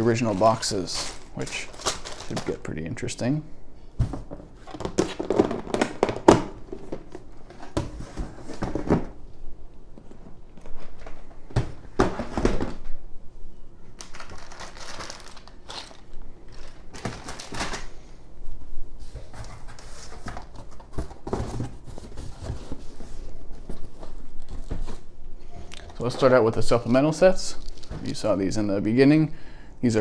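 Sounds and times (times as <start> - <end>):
plastic bags crinkling: 0.0 - 2.7, 14.0 - 18.0, 27.3 - 28.3.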